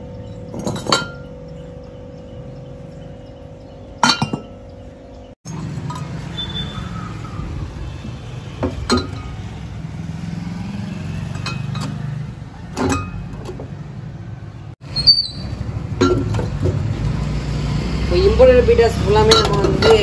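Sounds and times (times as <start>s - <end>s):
glass jars knocking and clinking: 0.2s - 1.8s, 4.0s - 4.7s, 8.6s - 9.5s, 11.3s - 12.0s, 12.8s - 13.7s, 15.9s - 16.8s, 19.2s - 20.0s.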